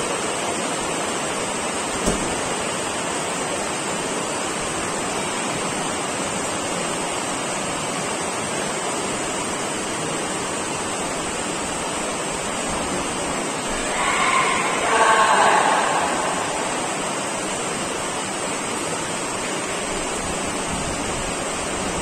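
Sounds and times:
sports hall background rush: 0.0 - 22.0.

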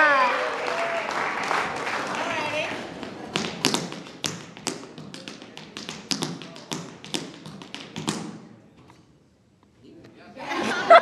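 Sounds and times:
tap shoes on stage floor: 2.1 - 8.4.

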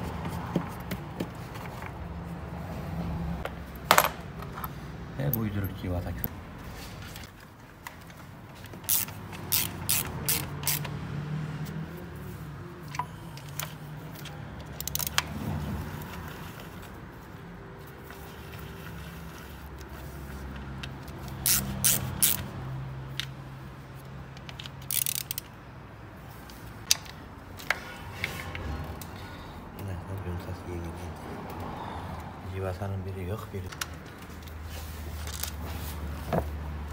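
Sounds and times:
ratchet wrench clicking: 8.8 - 11.0, 12.9 - 15.3, 20.8 - 22.5, 24.4 - 25.6.

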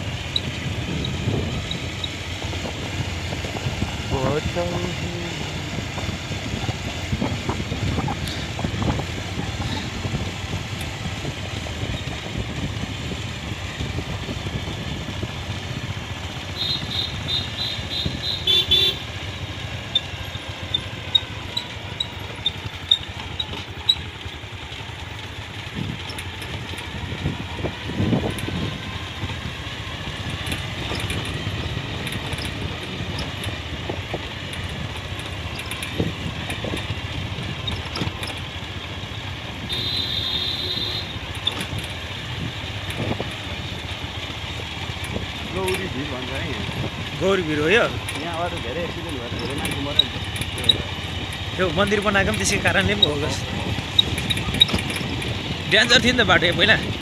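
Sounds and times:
motorcycle running: 0.0 - 57.0
horn beep: 16.6 - 19.0, 39.7 - 41.2.

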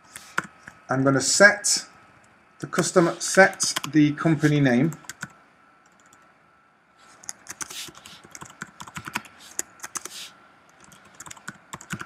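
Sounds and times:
computer keyboard typing: 3.4 - 4.0, 4.9 - 6.2, 7.2 - 12.0.

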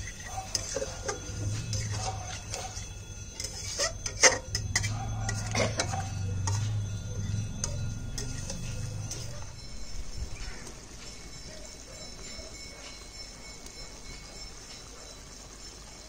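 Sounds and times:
metal utensil tapping a pan: 0.0 - 9.4
steady low hum: 0.0 - 15.1.

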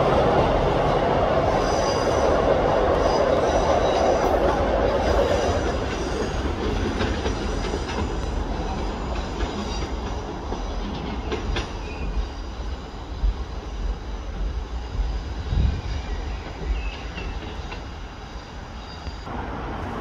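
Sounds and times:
diesel train engines running: 0.0 - 20.0
train wheels rumbling: 0.0 - 20.0
high wheel squeal: 1.4 - 13.2, 18.3 - 19.3.

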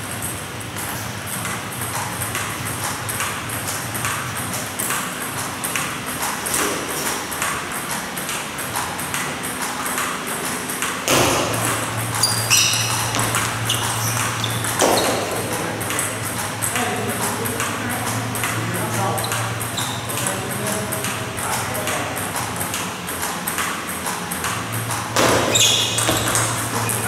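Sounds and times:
table tennis balls clicking: 0.2 - 27.0
short high-pitched squeaks: 12.2 - 15.3, 19.8 - 20.1, 25.5 - 26.5.

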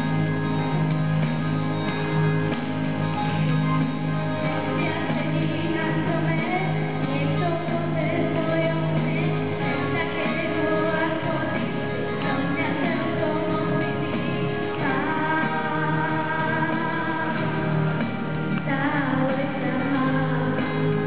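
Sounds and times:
backing track through loudspeaker: 0.0 - 21.0
girl singing into a microphone: 4.5 - 17.7, 18.6 - 21.0.

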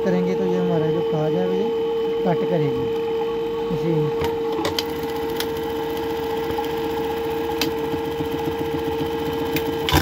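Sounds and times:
sewing machine motor hum and clatter: 3.7 - 10.0.

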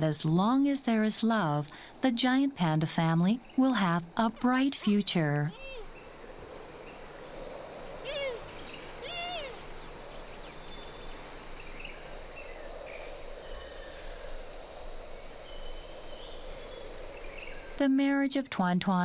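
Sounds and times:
animal calls rising and falling: 8.0 - 9.8
high-pitched insect drone: 8.0 - 10.8.

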